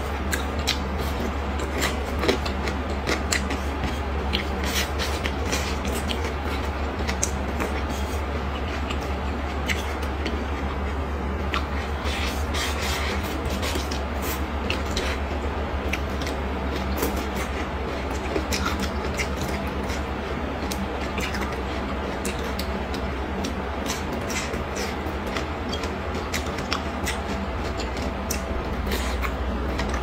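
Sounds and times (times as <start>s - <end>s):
chewing with wet mouth clicks: 0.0s - 30.0s
steady low hum: 0.0s - 30.0s.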